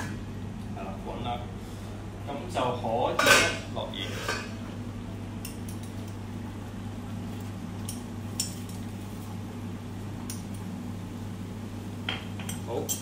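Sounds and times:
cooktop low hum: 0:00.0 - 0:13.0.

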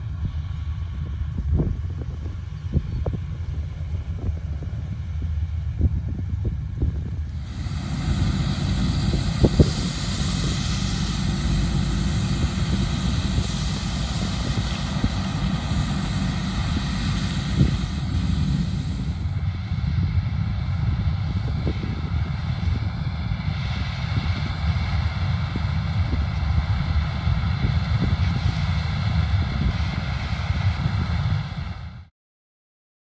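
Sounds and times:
combine harvester drone: 0:00.0 - 0:32.1
broad hiss: 0:07.0 - 0:19.5.

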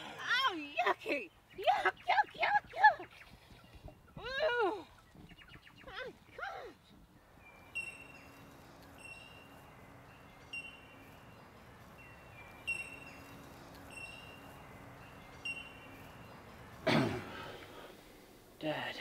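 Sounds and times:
faint low hum: 0:00.0 - 0:19.0
bird whistled call: 0:12.0 - 0:16.3.

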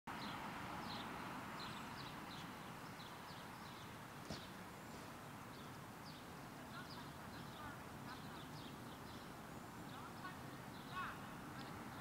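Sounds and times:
birds chirping: 0:00.1 - 0:12.0
faint background hiss: 0:00.1 - 0:12.0.

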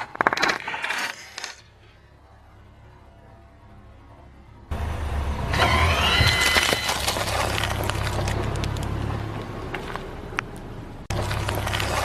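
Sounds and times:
cookies cracking under tyre: 0:00.0 - 0:01.7, 0:06.0 - 0:09.0, 0:11.1 - 0:12.0
car engine running: 0:04.7 - 0:12.0.

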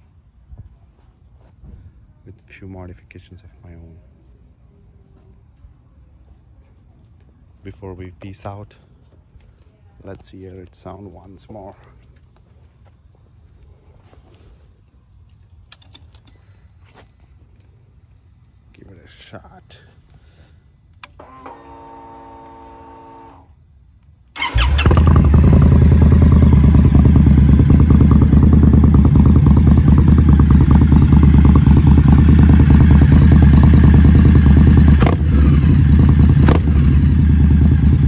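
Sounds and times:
starter motor whine: 0:21.0 - 0:23.5, 0:24.4 - 0:26.8
motorcycle engine idling: 0:24.4 - 0:38.0.

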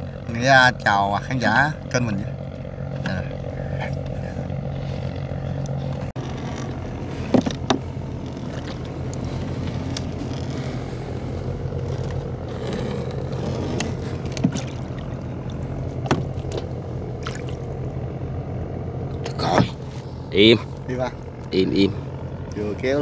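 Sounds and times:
small motorboat engine humming: 0:00.0 - 0:23.0
sharp knocks: 0:16.0 - 0:16.6.

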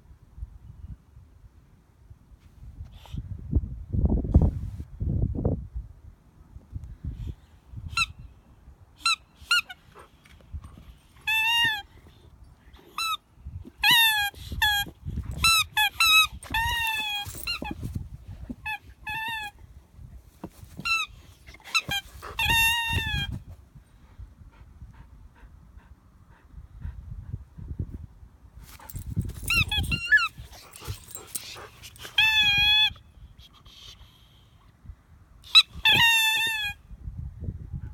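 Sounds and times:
rubber squeaky toy squeaking: 0:09.0 - 0:09.8, 0:11.2 - 0:11.9, 0:13.0 - 0:19.6, 0:20.5 - 0:23.4, 0:28.7 - 0:33.0, 0:35.5 - 0:36.8.

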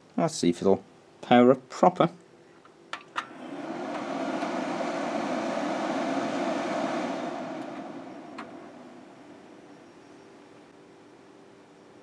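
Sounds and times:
computer cooling fans spinning: 0:03.2 - 0:10.5.

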